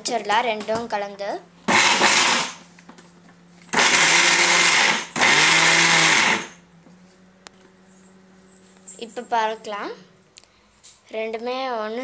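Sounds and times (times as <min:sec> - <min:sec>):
mixer grinder grinding seeds: 0:01.7 - 0:02.7, 0:03.7 - 0:06.6.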